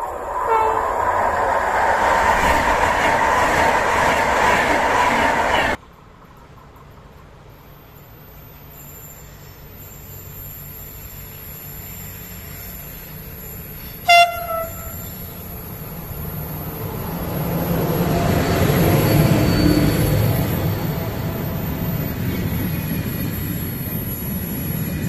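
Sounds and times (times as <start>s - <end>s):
train rumble: 0.0s - 25.0s
locomotive horn blast: 0.4s - 1.0s, 14.0s - 15.3s.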